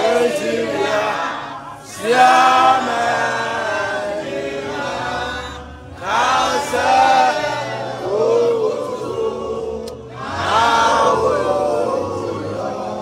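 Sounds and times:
crowd singing together: 0:00.0 - 0:13.0.

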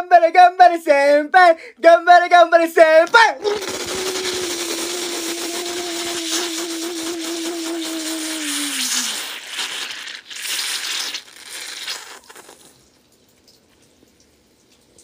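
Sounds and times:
cola fizzing and bubbling: 0:03.4 - 0:15.0.

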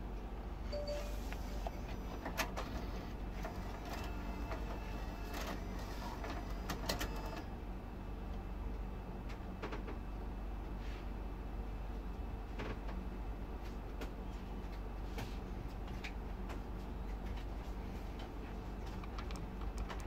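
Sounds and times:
cd changer clicks and whirring: 0:00.2 - 0:07.6, 0:08.2 - 0:10.0, 0:13.9 - 0:20.0.

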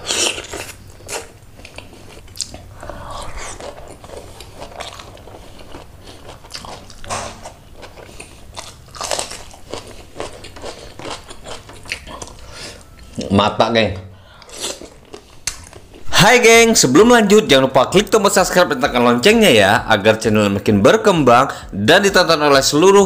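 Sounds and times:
person chewing food: 0:00.0 - 0:13.3, 0:14.3 - 0:16.1.

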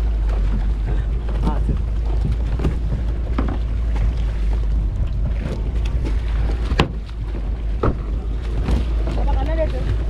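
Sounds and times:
water sloshing around boat: 0:00.0 - 0:10.0
wind rumbling on microphone: 0:00.0 - 0:10.0
splashes and knocks of net hauled: 0:05.4 - 0:10.0.

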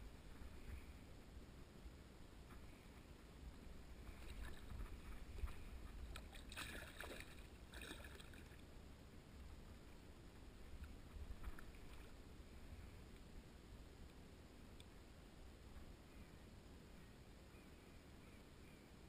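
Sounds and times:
faint low rumble: 0:00.0 - 0:19.0
fish splashing in water: 0:06.2 - 0:08.6.

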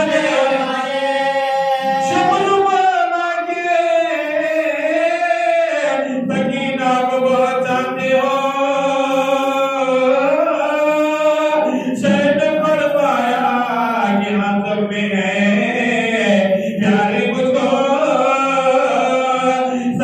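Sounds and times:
man chanting unaccompanied: 0:00.0 - 0:20.0
man breathing: 0:11.7 - 0:12.0.

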